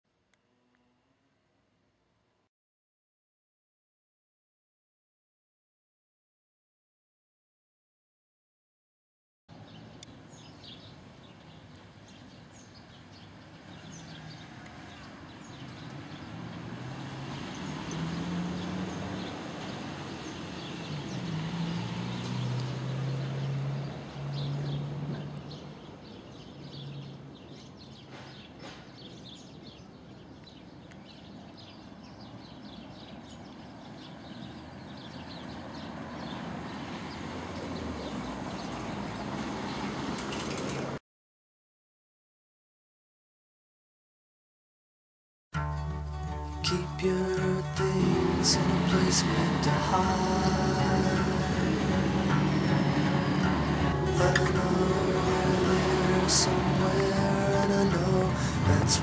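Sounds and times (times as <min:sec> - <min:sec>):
birds chirping: 0:09.5 - 0:39.8, 0:46.3 - 0:59.0
traffic noise: 0:09.5 - 0:41.0, 0:45.8 - 0:59.0
vehicle engine running: 0:47.1 - 0:59.0.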